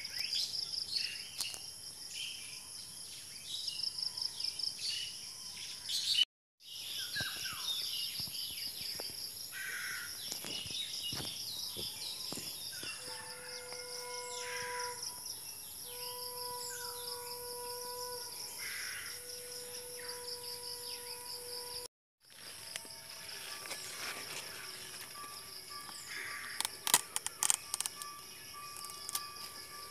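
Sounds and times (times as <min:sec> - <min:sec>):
pulsing insect chorus: 0:07.0 - 0:29.9.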